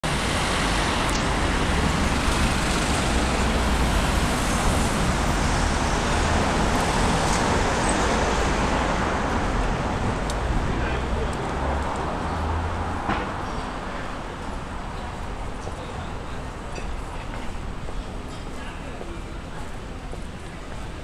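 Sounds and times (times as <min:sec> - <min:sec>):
road traffic hum: 0:00.0 - 0:18.3.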